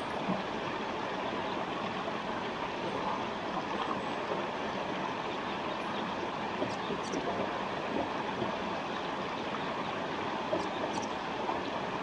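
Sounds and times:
forest stream rushing: 0:00.0 - 0:12.0.

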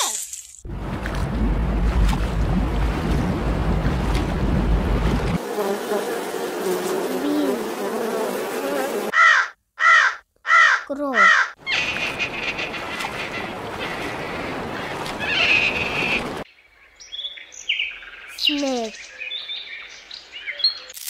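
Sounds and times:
low rumbling noise: 0:00.6 - 0:05.4
flying insect buzzing: 0:05.4 - 0:09.1
crow cawing: 0:09.1 - 0:14.0.

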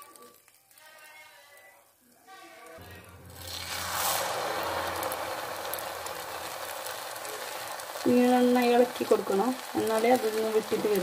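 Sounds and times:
batter sizzling in hot oil: 0:00.0 - 0:11.0.

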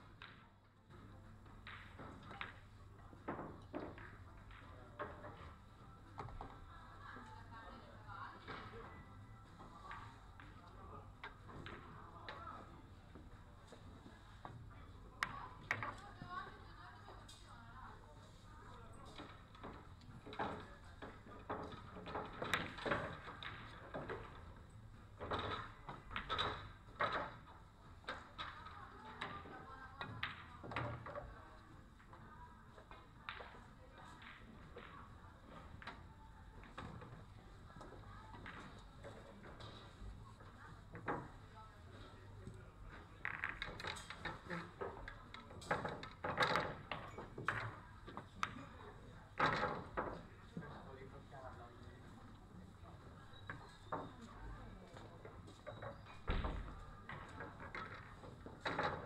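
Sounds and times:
faint indistinct voices: 0:00.0 - 0:59.0
pool balls clicking: 0:19.1 - 0:31.3, 0:42.9 - 0:50.3, 0:55.0 - 0:59.0.

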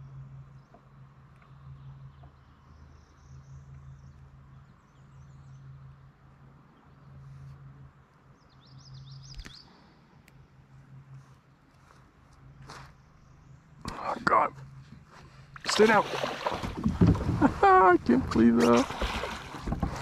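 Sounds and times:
low hum: 0:00.0 - 0:20.0
bird chirping: 0:08.3 - 0:09.8.

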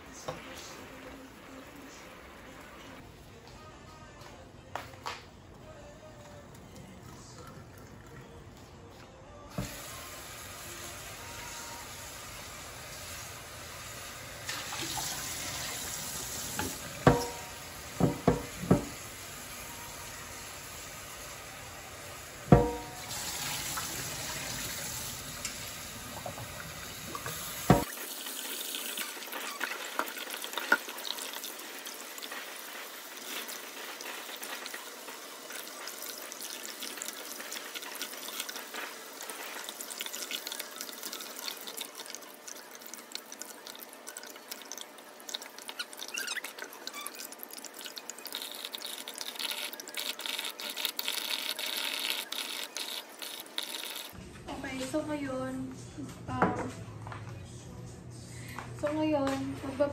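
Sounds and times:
tap running into steel sink: 0:16.6 - 0:17.4, 0:18.0 - 0:19.0, 0:22.5 - 0:23.1, 0:27.1 - 0:27.9
pan knocking against sink: 0:16.6 - 0:19.0, 0:22.5 - 0:23.1, 0:27.6 - 0:27.9.

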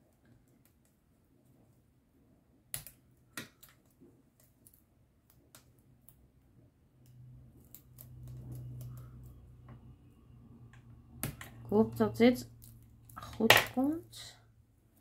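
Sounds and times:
low hum: 0:07.0 - 0:13.2.

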